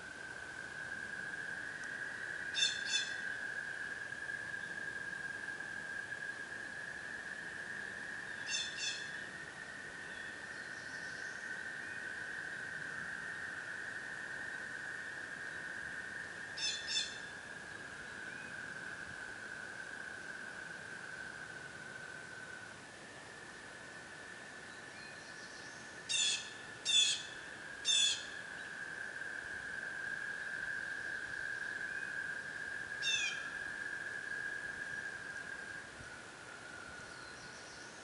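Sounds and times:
frogs trilling: 0.0s - 22.7s, 24.0s - 36.0s
bird call: 2.6s - 3.2s, 8.4s - 9.2s, 16.6s - 17.3s, 33.0s - 33.7s.

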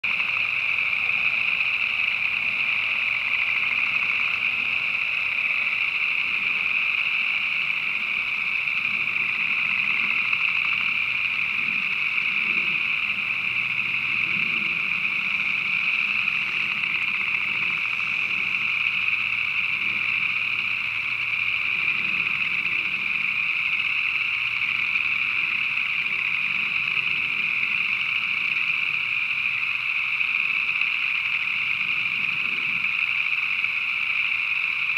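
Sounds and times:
frogs calling in chorus: 0.0s - 34.9s.

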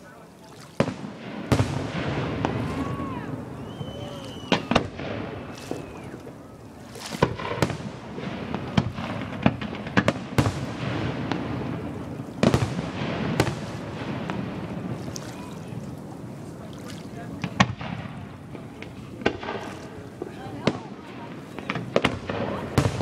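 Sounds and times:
fireworks bangs: 0.8s - 16.6s, 17.2s - 23.0s
fireworks whistles: 1.5s - 6.5s.

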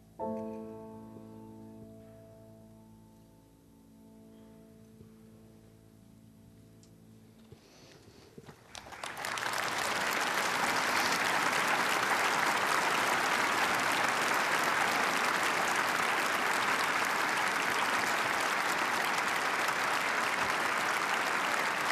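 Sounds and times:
audience clapping: 8.5s - 21.9s.

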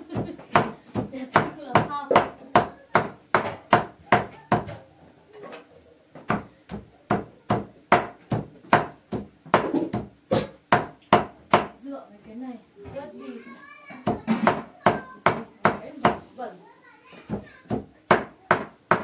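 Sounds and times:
cleaver chopping meat on wood: 0.1s - 4.7s, 6.2s - 11.8s, 17.3s - 19.0s.

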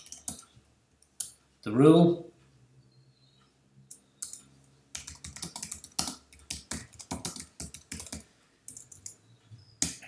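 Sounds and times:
computer keyboard typing: 0.0s - 0.5s, 3.9s - 9.2s.

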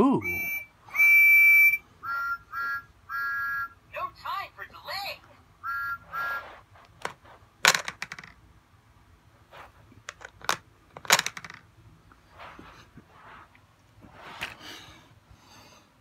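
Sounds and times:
loud plastic snaps: 7.0s - 8.3s, 10.0s - 11.6s
plastic toy lever clicking: 7.7s - 8.3s, 10.1s - 11.6s.

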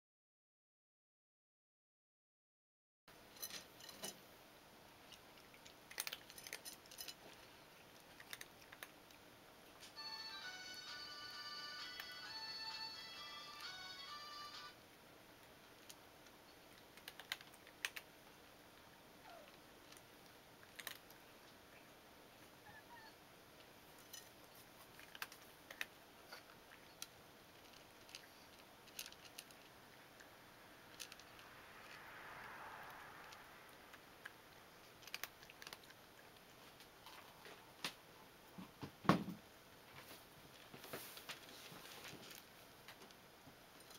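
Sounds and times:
cats crunching food: 4.9s - 22.8s, 23.5s - 38.5s, 39.7s - 43.9s
background music: 10.0s - 14.8s.

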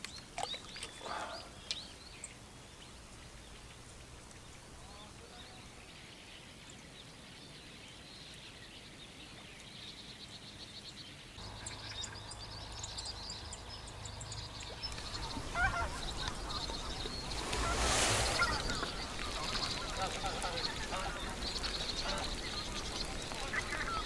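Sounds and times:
flock of birds chattering: 0.0s - 24.0s
birds honking: 11.5s - 24.0s.

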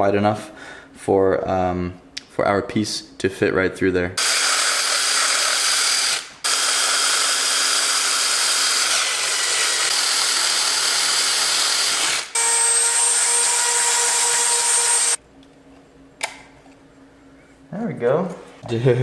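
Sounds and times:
cordless drill drilling plastic: 4.2s - 15.2s.

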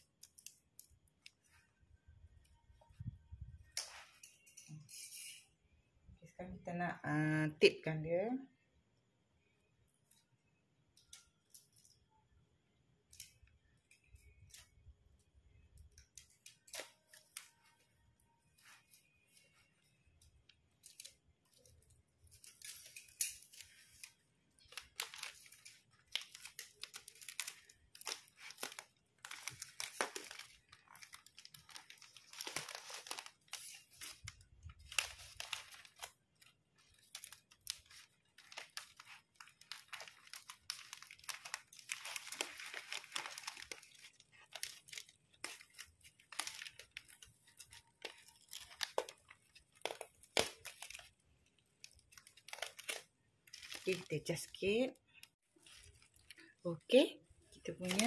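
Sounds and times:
paper and cellophane crinkling: 0.0s - 4.7s, 13.1s - 58.0s
adhesive tape pulled and torn: 16.0s - 17.4s, 51.9s - 53.9s.

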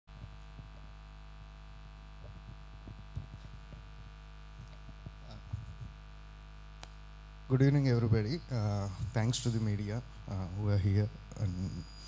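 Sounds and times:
soft low thumps: 0.1s - 6.2s, 8.0s - 9.7s
electrical mains hum: 0.1s - 12.0s.

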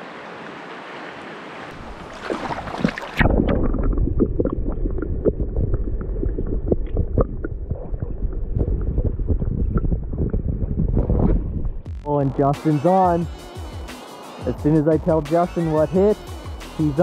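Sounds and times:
water splashing: 1.4s - 11.8s
underwater river rumble: 1.6s - 12.2s
small underwater clicks and knocks: 2.8s - 11.4s.

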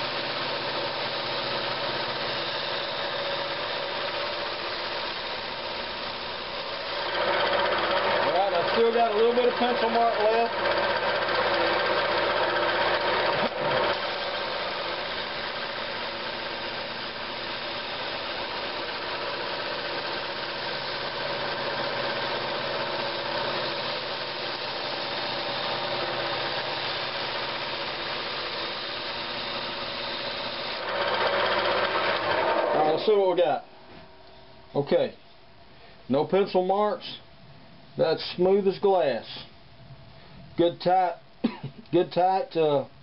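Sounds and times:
drum sander hissing on wood: 0.0s - 33.4s
lathe humming: 0.0s - 33.5s.

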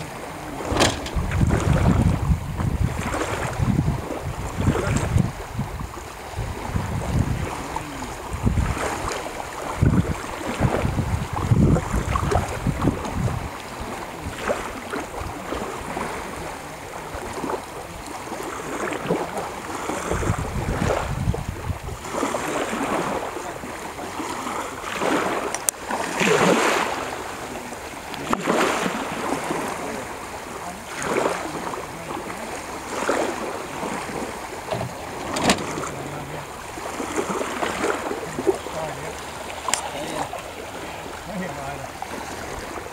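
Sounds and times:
shallow water lapping: 0.0s - 42.9s
wind rumbling on microphone: 0.0s - 42.9s.

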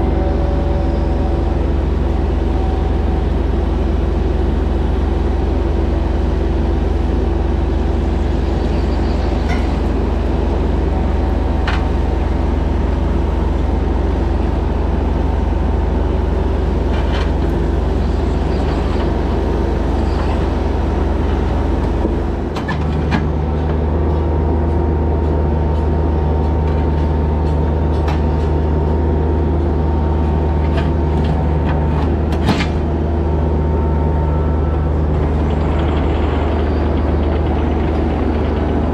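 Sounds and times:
excavator engine running: 0.0s - 38.9s.

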